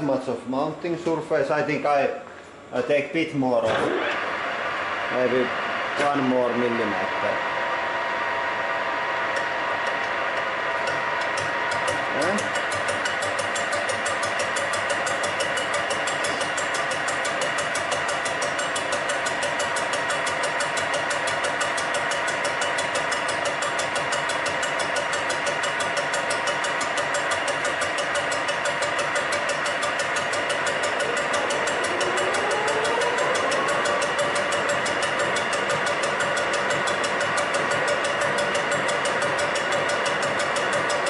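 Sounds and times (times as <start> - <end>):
lathe spindle and gearbox whining: 4.0 - 41.0
cutting tool ticking: 9.3 - 41.0.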